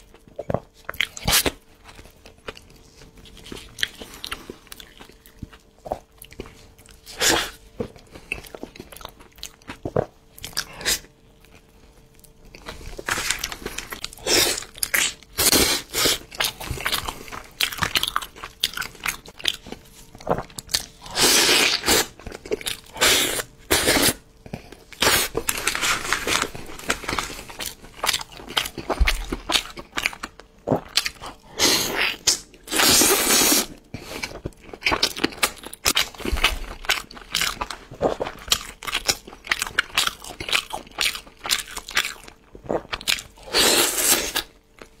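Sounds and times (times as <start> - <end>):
person chewing food: 0.0 - 45.0.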